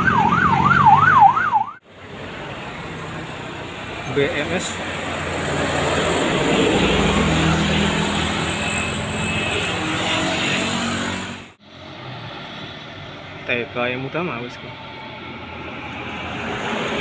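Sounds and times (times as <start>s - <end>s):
road background noise: 0.0s - 17.0s
bus diesel engine climbing: 11.1s - 17.0s.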